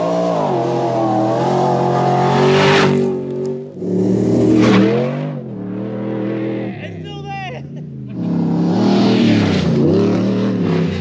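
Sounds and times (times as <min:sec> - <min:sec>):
race vehicle engine running hard: 0:00.0 - 0:07.0, 0:07.6 - 0:11.0
second vehicle engine rising: 0:07.7 - 0:11.0.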